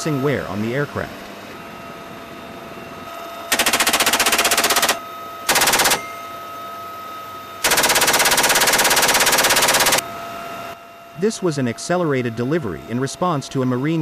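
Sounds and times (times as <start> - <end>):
faint steady whine: 0.0 - 14.0
helicopter drone: 0.0 - 14.0
machine gun bursts: 3.5 - 6.0, 7.6 - 10.0.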